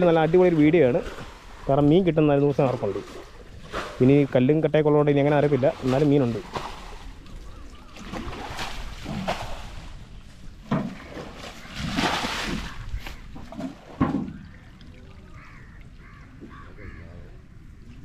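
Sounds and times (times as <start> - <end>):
water splashing from scoop: 0.0 - 1.9, 5.2 - 7.3, 7.9 - 10.0, 10.7 - 15.3.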